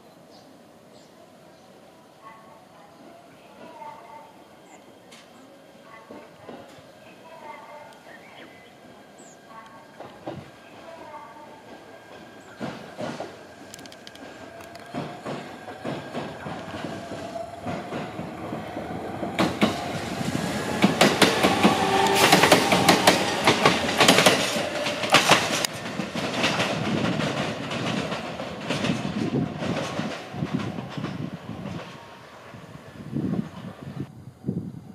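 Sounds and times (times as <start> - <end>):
train wheels clacking over rail joints: 11.6 - 32.0.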